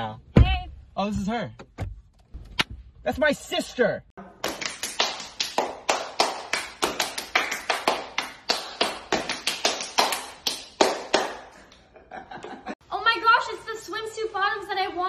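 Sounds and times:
hand claps and slaps: 0:04.4 - 0:11.8.

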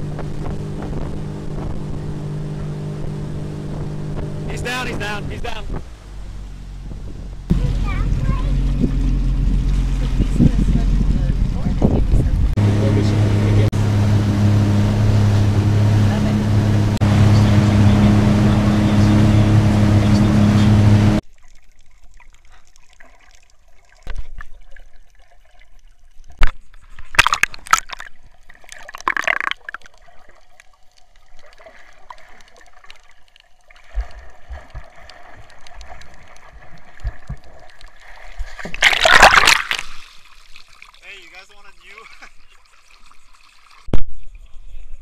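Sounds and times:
speedboat running fast: 0:00.0 - 0:21.2
loud rush of water: 0:12.6 - 0:21.2
sharp splashes: 0:12.6 - 0:25.3, 0:26.3 - 0:30.4, 0:31.2 - 0:44.2
underwater clicks: 0:26.4 - 0:28.1, 0:28.7 - 0:30.1, 0:32.3 - 0:40.0.

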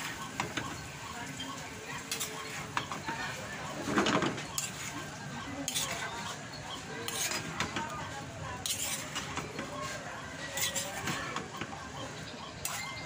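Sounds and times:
metal spatula scraping a pan: 0:02.0 - 0:02.9, 0:04.4 - 0:11.2, 0:12.6 - 0:13.0.

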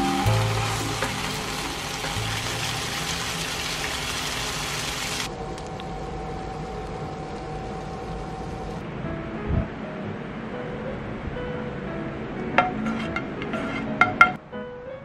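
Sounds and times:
soft background music: 0:00.0 - 0:03.2, 0:08.8 - 0:15.0
fish sizzling in a frying pan: 0:00.3 - 0:05.3.

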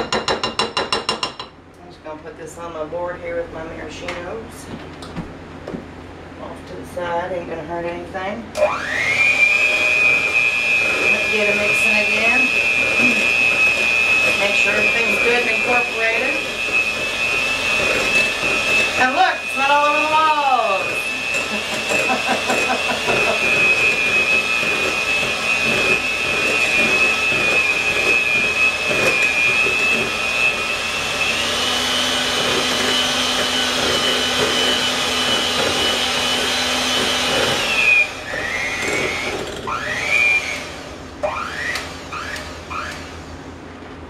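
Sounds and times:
electric mixer whining: 0:08.6 - 0:43.5.

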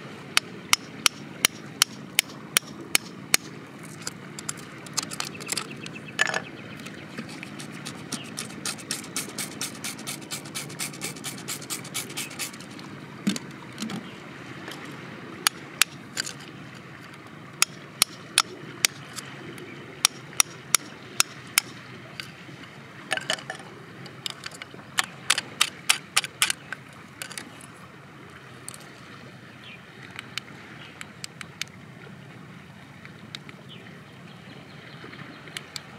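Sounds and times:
sharp clicks: 0:01.5 - 0:12.7, 0:24.2 - 0:27.4
screwdriver scraping in sand and stone: 0:03.8 - 0:06.0, 0:07.1 - 0:12.8, 0:16.2 - 0:16.4, 0:24.2 - 0:26.6.

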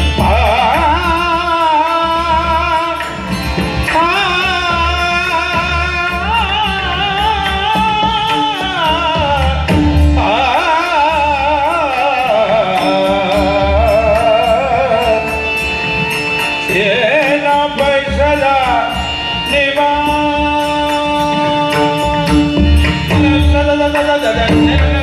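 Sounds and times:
harmonium: 0:00.0 - 0:25.0
man singing devotional song: 0:00.0 - 0:25.0
barrel drum: 0:03.2 - 0:10.7.

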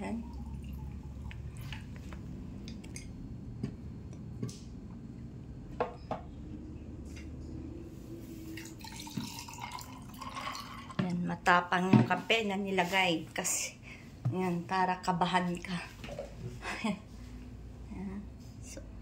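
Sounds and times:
milk trickling over ice: 0:00.2 - 0:01.9, 0:08.6 - 0:11.0
coffee pouring over ice: 0:08.6 - 0:11.0.

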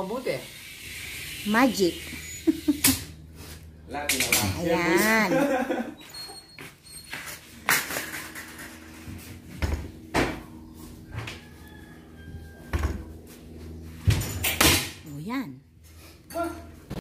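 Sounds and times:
low steady hum: 0:07.6 - 0:17.0.

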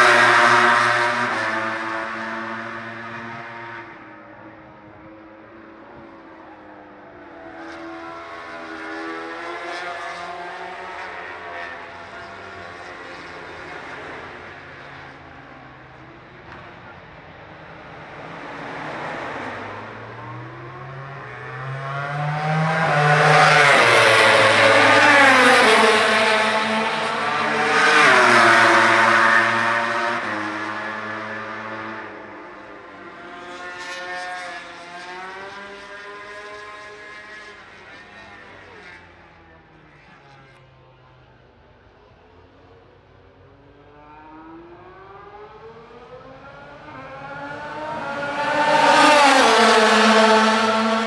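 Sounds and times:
racing motorcycles passing: 0:00.0 - 0:04.3, 0:18.3 - 0:39.0, 0:43.7 - 0:51.0.

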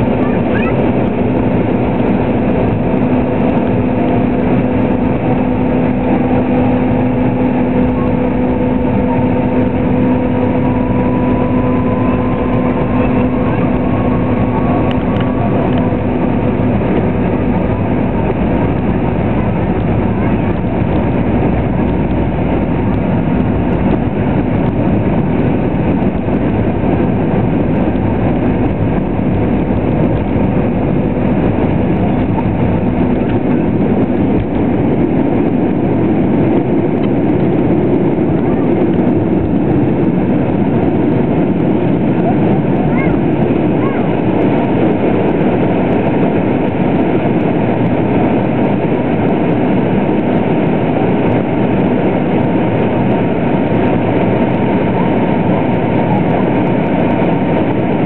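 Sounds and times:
jet engine cabin noise: 0:00.0 - 0:58.0
faint rising whine: 0:01.3 - 0:37.7.

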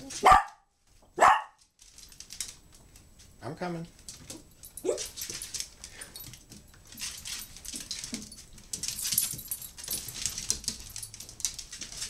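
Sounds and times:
dogs scratching at a door: 0:04.1 - 0:12.0.

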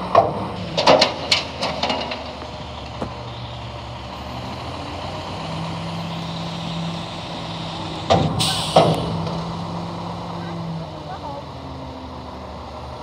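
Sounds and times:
garbage truck engine and hydraulics: 0:00.0 - 0:13.0
bang: 0:08.0 - 0:09.4
air hiss: 0:08.4 - 0:09.1.

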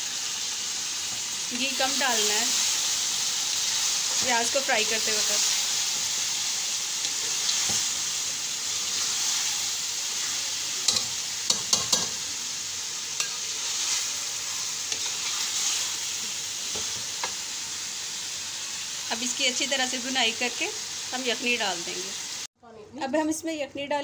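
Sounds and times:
meat sizzling in oil: 0:00.0 - 0:22.5
metal spoon clicking on pan: 0:10.8 - 0:12.2, 0:13.2 - 0:13.4.

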